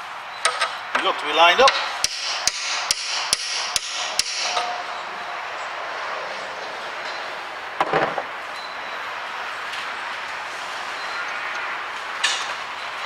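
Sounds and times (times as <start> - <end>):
hammer tapping steel shaft: 1.7 - 4.8.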